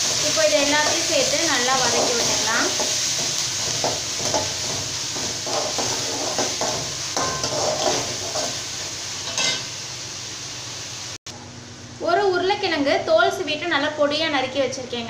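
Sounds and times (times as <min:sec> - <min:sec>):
oil sizzling: 0:00.0 - 0:11.2
metal spoon scraping a pan: 0:01.7 - 0:08.6, 0:09.2 - 0:09.7.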